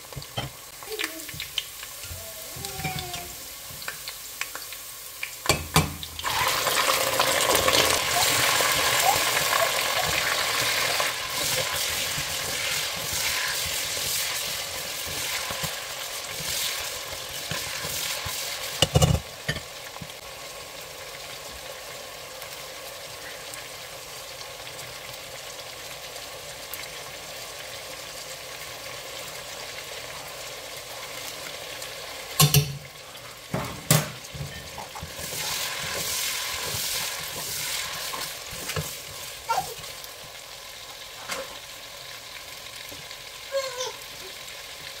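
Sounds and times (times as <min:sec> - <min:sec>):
meat sizzling in oil: 0:00.0 - 0:45.0
spatula stirring and scraping: 0:08.2 - 0:19.6, 0:34.3 - 0:39.9.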